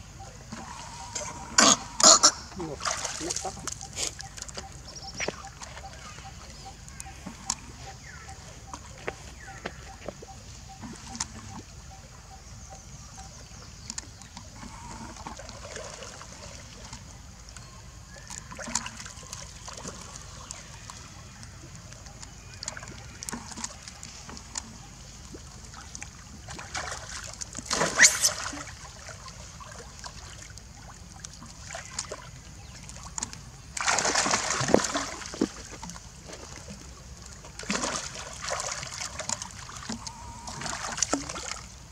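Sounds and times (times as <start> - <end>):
water sloshing and trickling: 0.0 - 41.9
monkeys splashing in water: 1.2 - 6.8, 25.6 - 36.8, 37.6 - 41.7.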